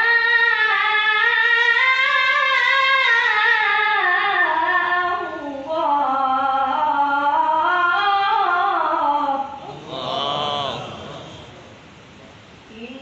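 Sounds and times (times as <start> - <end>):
boy reciting melodically: 0.0 - 11.6.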